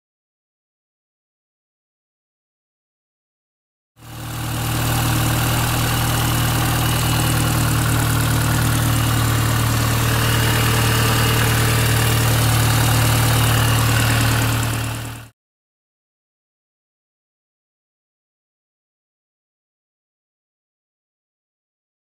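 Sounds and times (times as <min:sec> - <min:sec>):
car engine idling: 0:04.0 - 0:15.3
loud noise under engine: 0:04.0 - 0:15.3.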